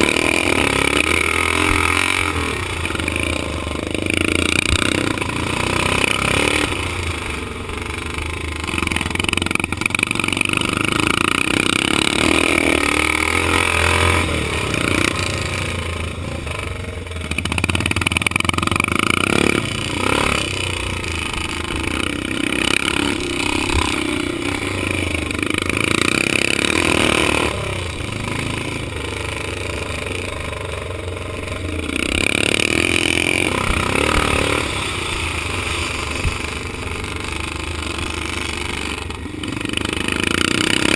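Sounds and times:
motorcycle engine surging: 0:00.0 - 0:40.9.

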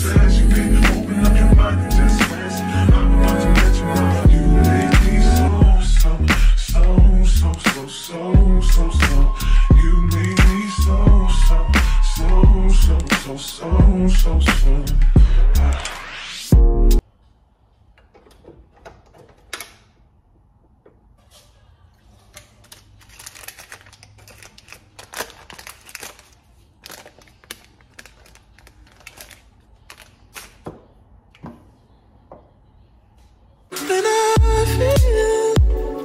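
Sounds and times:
paper wrapper rustling: 0:22.1 - 0:30.6.

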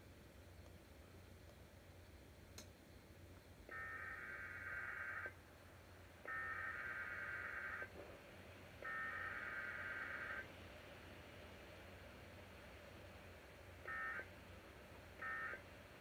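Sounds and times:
data tone bursts: 0:13.8 - 0:14.3, 0:15.2 - 0:15.7.

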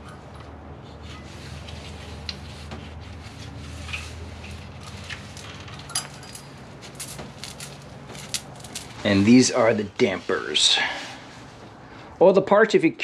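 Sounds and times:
metal chain links clinking: 0:05.6 - 0:09.0.

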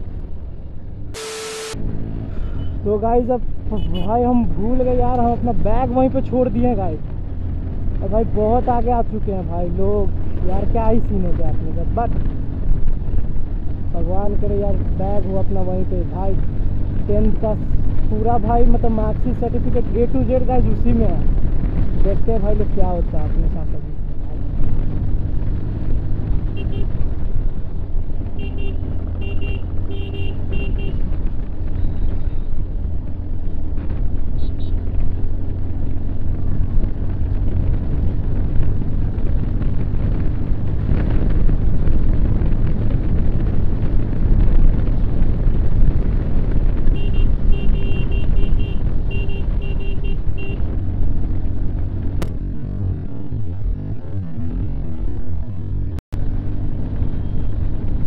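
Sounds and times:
motorcycle engine and wind rush: 0:00.0 - 0:58.0
horn beeping: 0:01.2 - 0:01.8, 0:28.4 - 0:31.0, 0:46.9 - 0:50.7.

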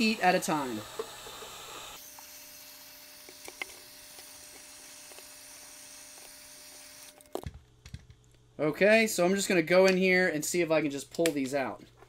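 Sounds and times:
heat gun blowing air: 0:00.0 - 0:07.2.

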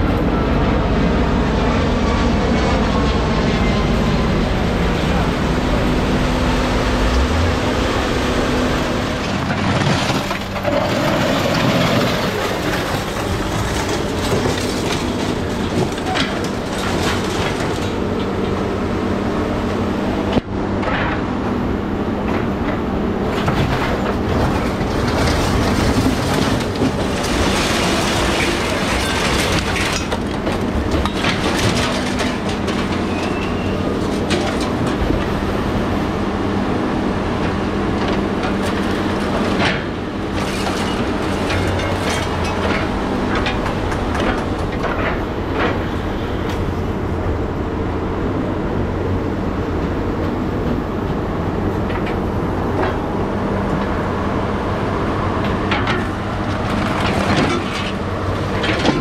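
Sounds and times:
engine and hydraulic drone: 0:00.0 - 0:59.0.

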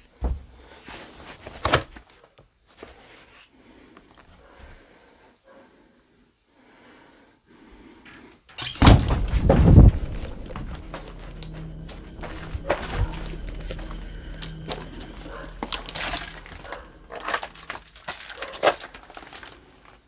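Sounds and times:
rough rumble of handling noise: 0:09.0 - 0:20.0.

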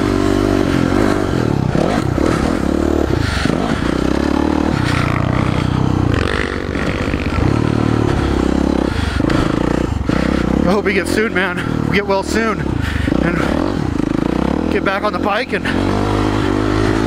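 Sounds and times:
motocross bike engine revving: 0:00.0 - 0:17.0.

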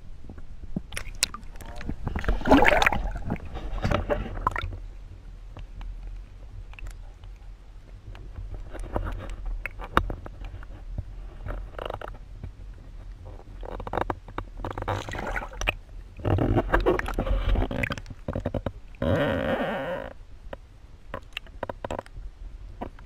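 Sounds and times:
low rumble: 0:00.0 - 0:09.6
underwater sloshing and gurgling: 0:00.0 - 0:23.0
churning water surges: 0:00.9 - 0:04.8.

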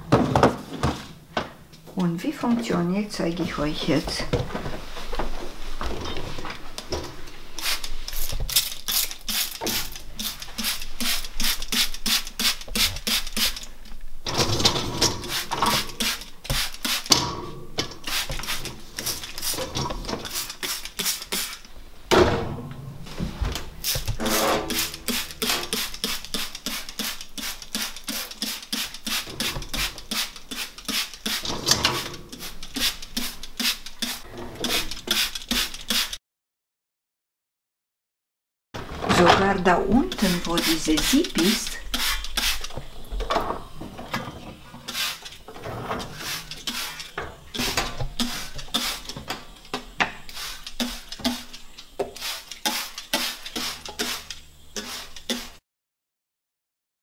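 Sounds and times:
spray bottle hissing squirts: 0:07.6 - 0:13.7, 0:15.2 - 0:17.2, 0:18.0 - 0:21.7, 0:23.8 - 0:36.2, 0:40.1 - 0:42.8, 0:44.9 - 0:45.4, 0:46.1 - 0:49.2, 0:50.2 - 0:55.6.

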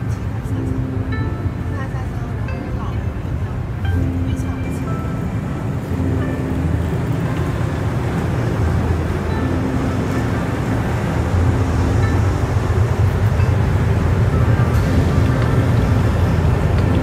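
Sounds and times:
train cabin rumble and hum: 0:00.0 - 0:17.0.

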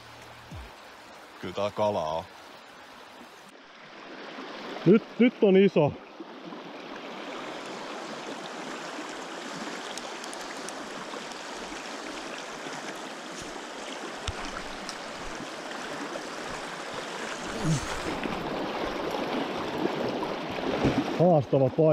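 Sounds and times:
rushing river rapid: 0:06.4 - 0:21.3
faint clicks: 0:09.9 - 0:11.5.

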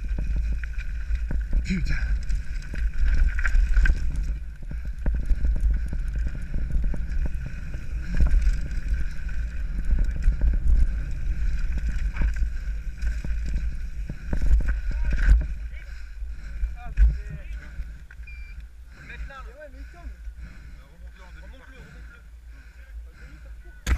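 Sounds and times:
bike rattling over stones: 0:00.0 - 0:18.1
wind buffeting microphone: 0:00.0 - 0:19.3.

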